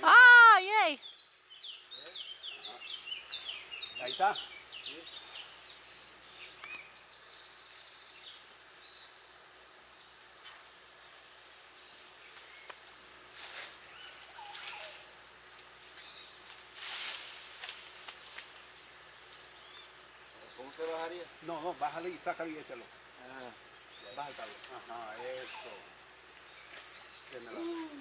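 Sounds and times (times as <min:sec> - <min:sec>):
high-pitched insect drone: 0:00.0 - 0:28.0
bird chirps: 0:01.0 - 0:09.2
leafy branches rustling: 0:09.2 - 0:28.0.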